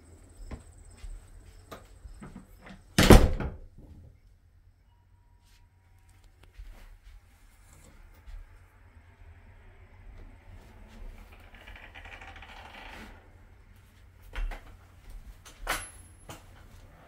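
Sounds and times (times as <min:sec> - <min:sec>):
wooden door scraping open: 0:10.2 - 0:13.7.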